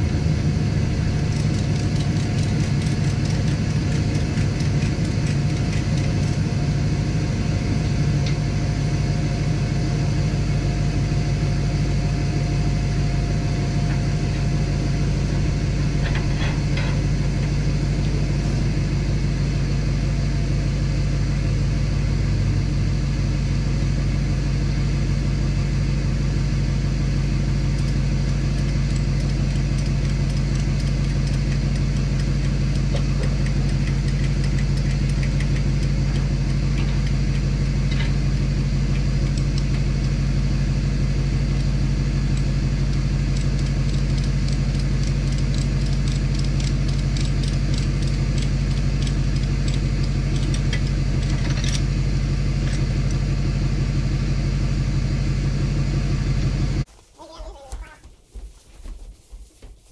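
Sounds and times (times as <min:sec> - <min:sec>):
engine running steadily: 0:00.0 - 0:58.0
light ticking and rattling: 0:27.7 - 0:38.2.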